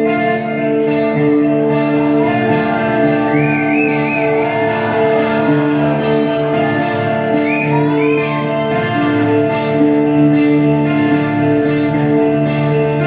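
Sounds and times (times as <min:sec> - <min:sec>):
droning chord music: 0:00.6 - 0:08.0.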